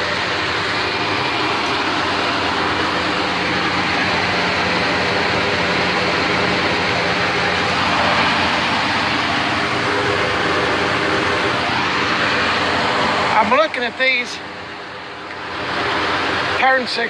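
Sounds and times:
truck engine idling: 0.0 - 17.0.

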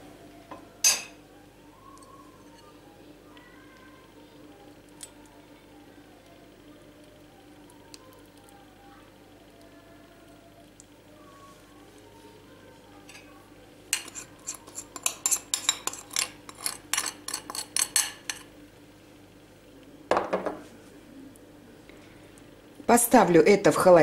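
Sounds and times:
metal utensil scraping glass bowl: 13.9 - 18.4.

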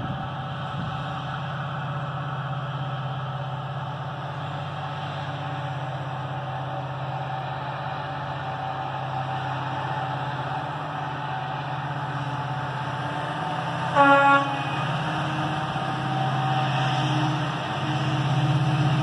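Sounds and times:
diesel locomotive engine drone: 0.0 - 19.0
locomotive air horn blast: 13.8 - 15.1.

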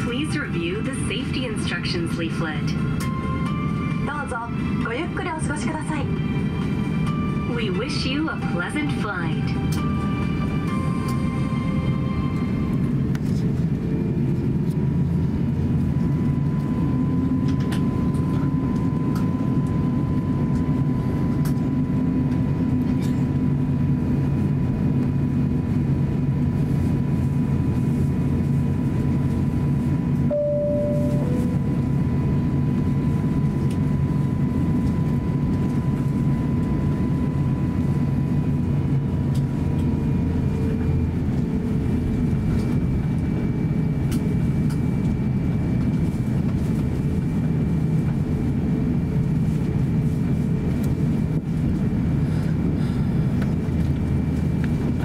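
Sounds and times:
jet engines humming with whine: 0.0 - 55.0
short single tone: 30.3 - 31.7.

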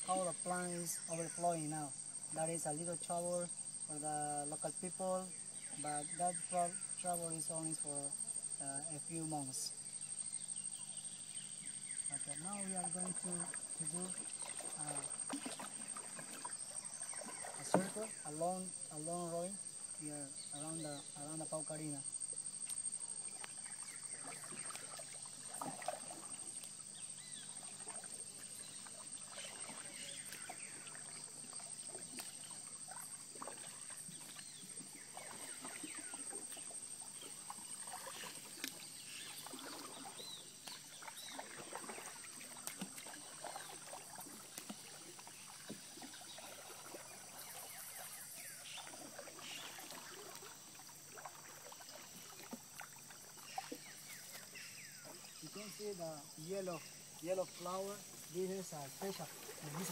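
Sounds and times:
high insect buzz: 0.0 - 59.9
paddle splashing in water: 12.2 - 18.7, 22.6 - 59.9
water dripping: 35.2 - 47.1.

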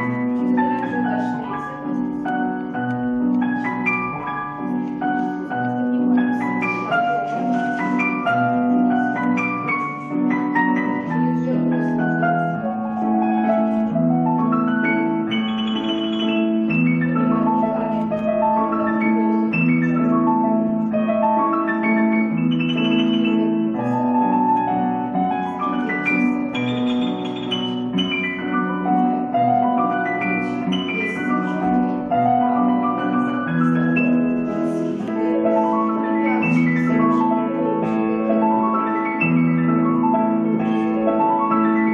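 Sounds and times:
slow keyboard melody: 0.0 - 41.9.

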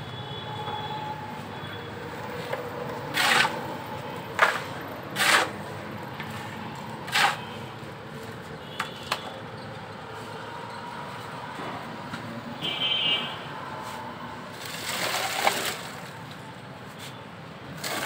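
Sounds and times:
shovel scraping concrete floor: 3.1 - 3.6, 4.3 - 5.6, 6.3 - 7.6, 14.6 - 16.1, 17.8 - 18.0.

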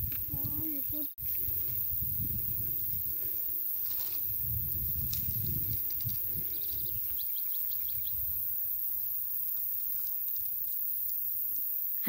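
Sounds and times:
bird chirping: 4.6 - 11.2.

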